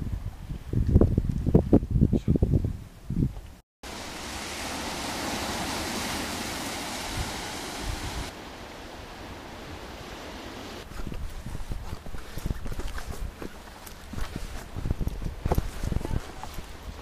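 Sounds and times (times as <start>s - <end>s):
surf washing over rocks: 3.8s - 10.8s.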